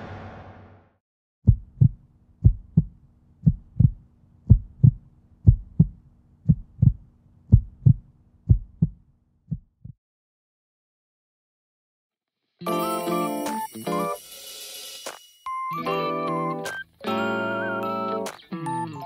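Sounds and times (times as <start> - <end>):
heartbeat thumping: 1.5 - 10.0.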